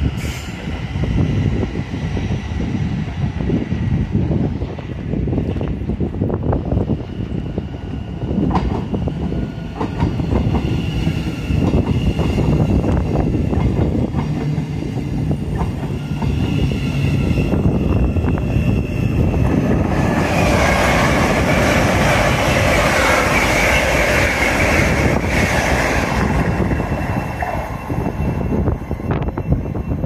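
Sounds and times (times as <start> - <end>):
high-speed train rushing past: 0.0 - 30.0
train wheels clicking over rail joints: 8.4 - 17.3.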